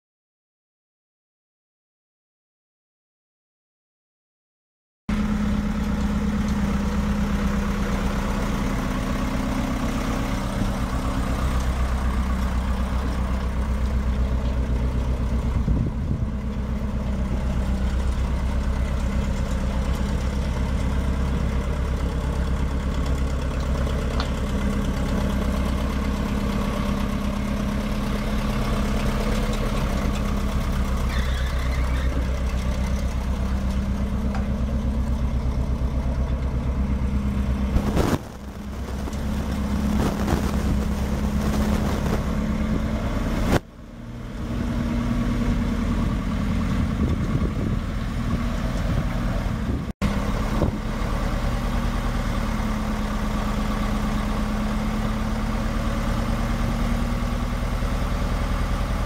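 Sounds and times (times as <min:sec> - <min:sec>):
diesel truck engine at low revs: 0:05.1 - 0:59.0.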